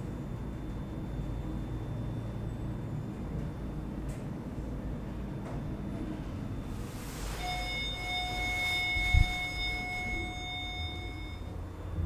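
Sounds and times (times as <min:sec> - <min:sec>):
elevator rumbling: 0:00.0 - 0:12.0
high ringing tone: 0:05.6 - 0:12.0.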